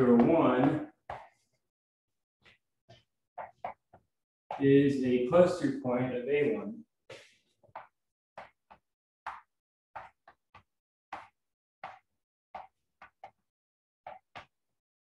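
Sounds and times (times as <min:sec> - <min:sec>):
chalk writing on blackboard: 0:00.6 - 0:01.5, 0:07.1 - 0:13.4.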